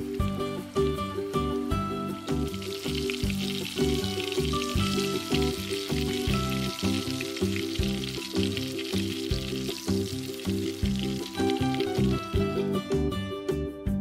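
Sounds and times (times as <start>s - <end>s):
hot oil sizzling and crackling: 0.0s - 12.5s
background music with steady beat: 0.0s - 14.0s.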